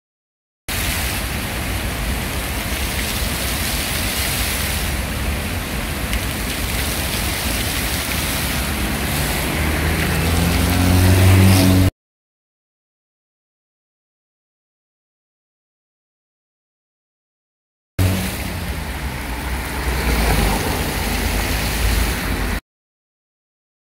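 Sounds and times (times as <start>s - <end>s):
fountain water splashing: 0.7s - 11.4s, 18.0s - 22.6s
car passing: 6.8s - 11.9s, 18.0s - 22.6s.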